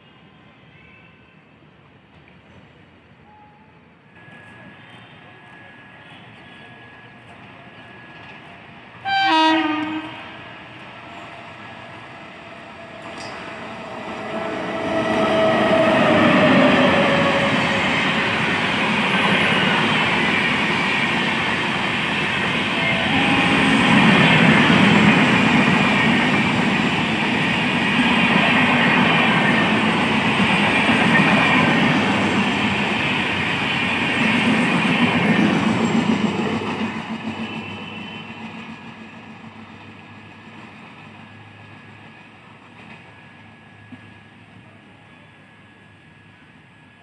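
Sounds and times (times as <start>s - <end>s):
locomotive tone dropping in pitch: 4.2s - 20.2s, 21.4s - 26.6s
train wheels rushing on rails: 6.4s - 44.7s.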